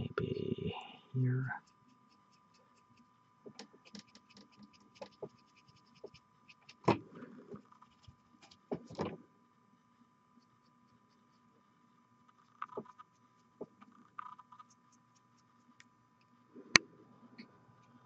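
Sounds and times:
faint electrical hum: 0:00.0 - 0:18.0
dry brush scratching: 0:01.6 - 0:06.9, 0:07.5 - 0:08.7, 0:12.3 - 0:15.8.

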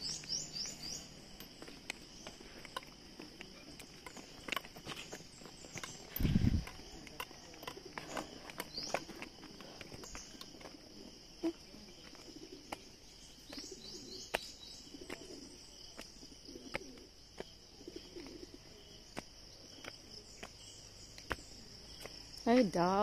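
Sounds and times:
dove cooing: 0:07.6 - 0:18.9.

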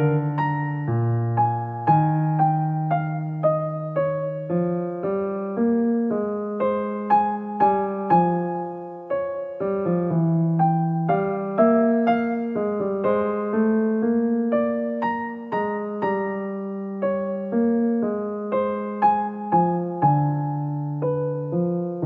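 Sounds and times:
solo piano music: 0:00.0 - 0:22.0.

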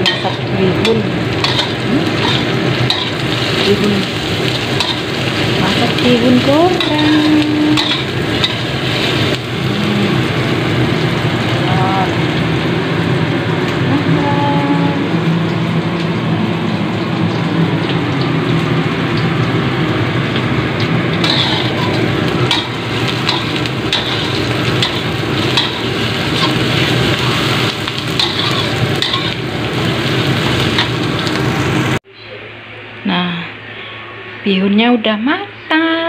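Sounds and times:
metal spatula scraping wok: 0:00.0 - 0:09.5, 0:21.1 - 0:31.4
onions sizzling in hot oil: 0:00.0 - 0:32.0.

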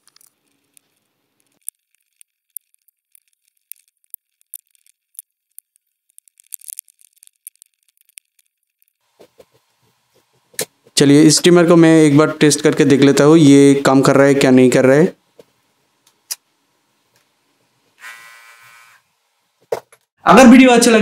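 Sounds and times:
plastic parts clicking: 0:00.0 - 0:09.0.

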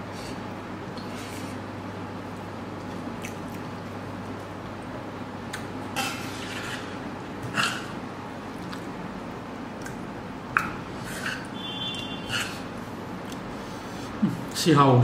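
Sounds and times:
metal spoon scraping a pan: 0:06.0 - 0:07.0, 0:11.0 - 0:12.7.

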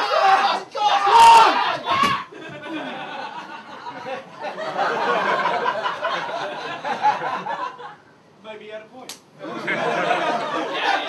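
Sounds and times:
audience laughing: 0:02.3 - 0:08.0, 0:09.4 - 0:11.0.

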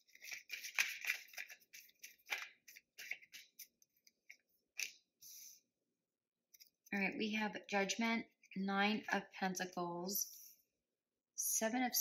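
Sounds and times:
cards rustling and tapping: 0:00.0 - 0:05.0.

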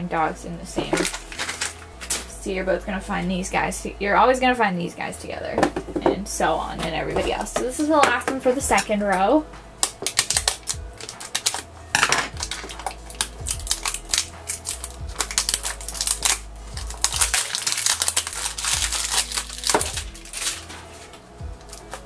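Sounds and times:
box and cardboard sleeve rustling: 0:00.8 - 0:02.3, 0:12.4 - 0:22.0
plastic shrink wrap crinkling: 0:00.8 - 0:02.4, 0:09.8 - 0:22.0.

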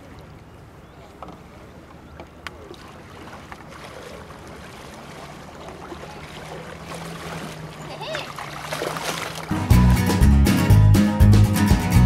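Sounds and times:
paddles splashing in water: 0:00.0 - 0:09.9.

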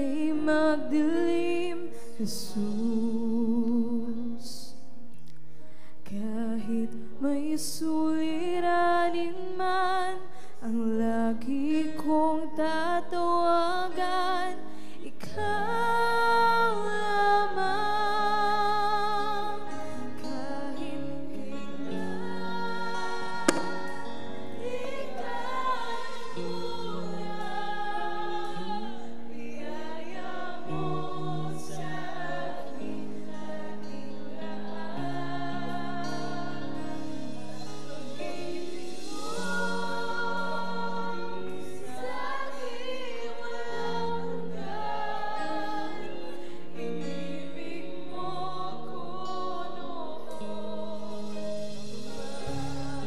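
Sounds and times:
choir singing worship song: 0:00.0 - 0:04.7, 0:06.1 - 0:53.0
woman singing lead: 0:00.0 - 0:05.0, 0:06.0 - 0:53.0
instrumental accompaniment: 0:19.3 - 0:43.8.

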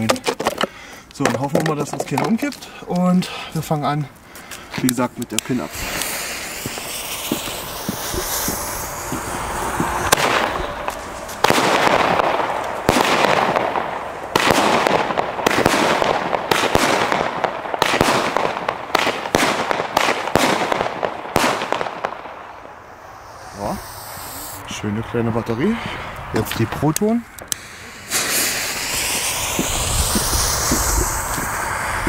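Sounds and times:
firework fuse hissing: 0:02.4 - 0:24.8, 0:26.5 - 0:32.0
firework shots cracking: 0:04.8 - 0:24.6, 0:26.9 - 0:32.0.

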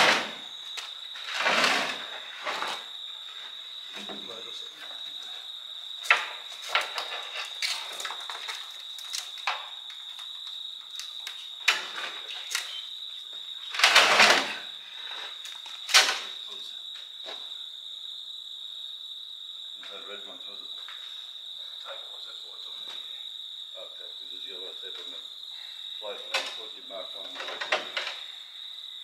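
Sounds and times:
crickets chirping: 0:00.0 - 0:29.0
clanks of tools being handled: 0:26.3 - 0:26.6, 0:27.3 - 0:28.2.

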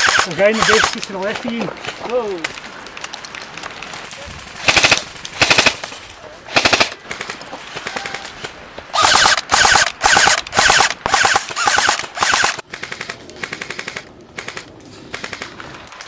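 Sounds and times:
airsoft gun full-auto bursts: 0:00.0 - 0:01.0, 0:04.6 - 0:05.8, 0:06.5 - 0:07.4, 0:09.0 - 0:15.5.

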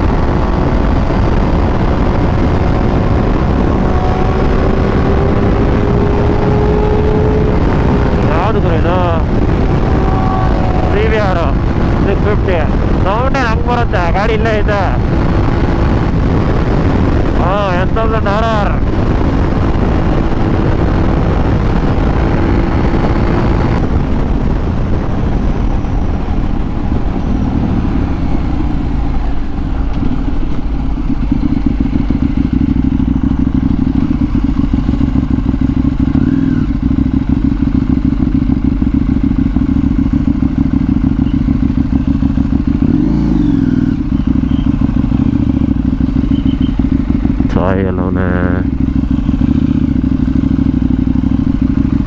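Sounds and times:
wind rush: 0:00.0 - 0:36.8
motorcycle engine: 0:00.0 - 0:52.0.

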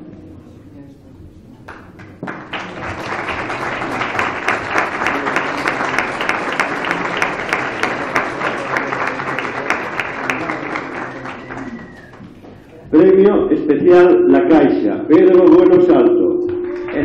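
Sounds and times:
audience applauding: 0:01.7 - 0:12.6.

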